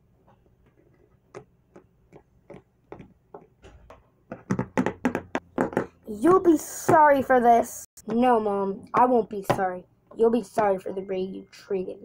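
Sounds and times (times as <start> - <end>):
plastic toy feet tapping: 1.3 - 6.0.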